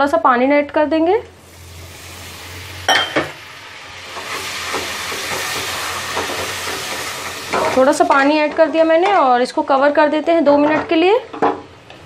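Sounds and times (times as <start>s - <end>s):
oil hissing and sizzling: 1.3s - 9.8s.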